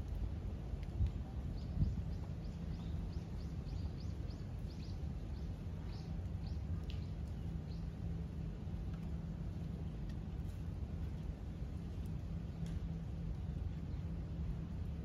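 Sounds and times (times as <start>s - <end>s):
low outdoor rumble: 0.0s - 15.0s
small bird chirping: 1.6s - 7.9s.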